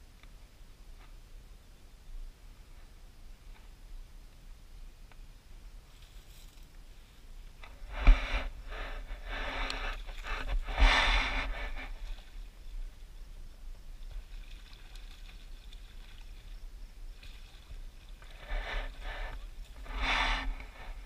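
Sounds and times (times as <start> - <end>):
rustling noise: 5.8 - 12.4, 18.3 - 21.0.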